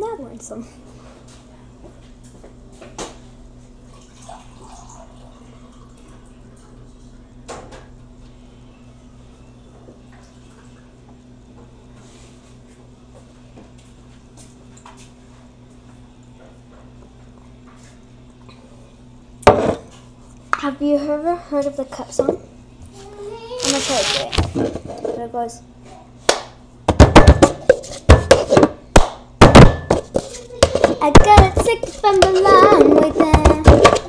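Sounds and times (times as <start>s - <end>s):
steady low hum: 0.0s - 34.0s
water filling a glass: 3.9s - 6.3s.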